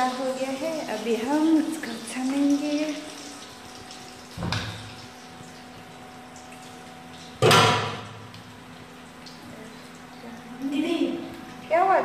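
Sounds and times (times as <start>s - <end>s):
knocks in a kitchen: 4.4s - 5.0s, 7.4s - 8.3s.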